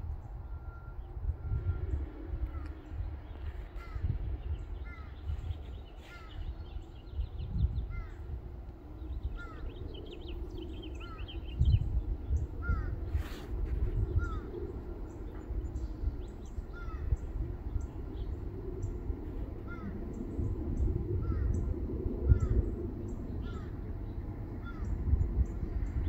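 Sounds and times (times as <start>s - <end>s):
low gusty rumble: 0.0s - 26.0s
bird calling: 0.4s - 8.3s, 9.0s - 11.7s, 14.1s - 20.3s, 23.3s - 23.8s.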